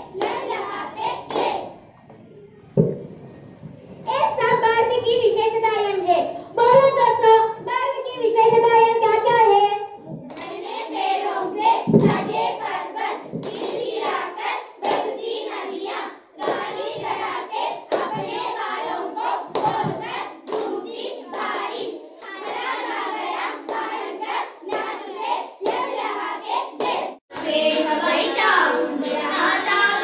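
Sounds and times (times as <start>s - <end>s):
children singing: 0.0s - 1.6s, 20.8s - 30.0s
hands clapping: 0.2s - 0.5s, 1.3s - 1.6s, 10.3s - 10.6s.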